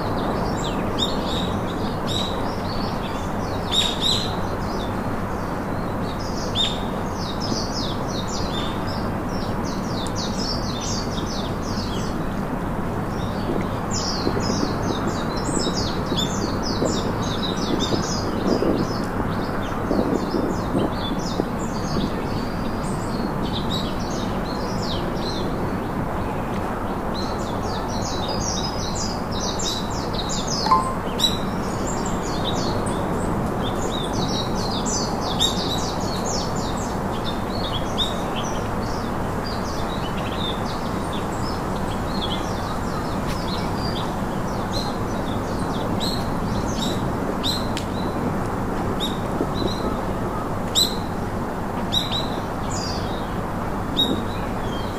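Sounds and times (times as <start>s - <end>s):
small birds chirping: 26.9s - 48.3s.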